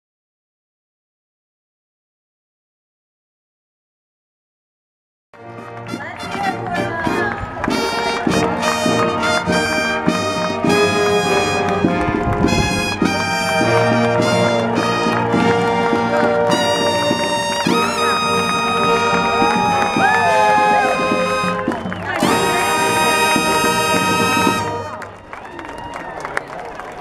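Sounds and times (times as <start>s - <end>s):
brass band playing: 5.4s - 25.4s.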